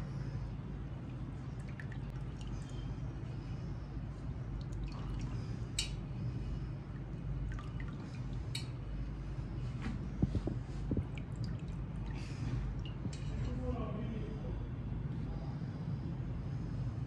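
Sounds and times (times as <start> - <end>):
steady low hum: 0.0 - 17.0
liquid dripping: 0.9 - 3.0, 4.5 - 6.2, 6.9 - 8.9, 10.3 - 13.4.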